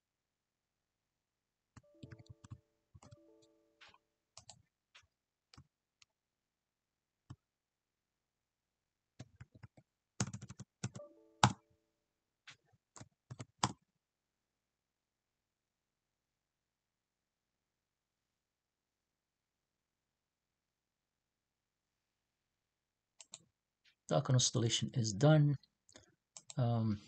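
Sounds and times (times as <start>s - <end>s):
keyboard keystrokes: 1.8s - 3.2s.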